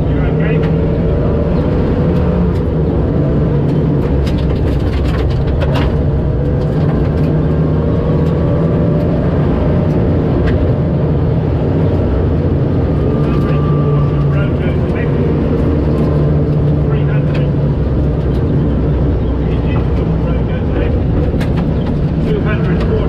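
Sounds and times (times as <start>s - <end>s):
rally car engine from inside cabin: 0.0s - 23.0s
gravel knocks and rattles: 2.1s - 9.2s, 14.8s - 23.0s.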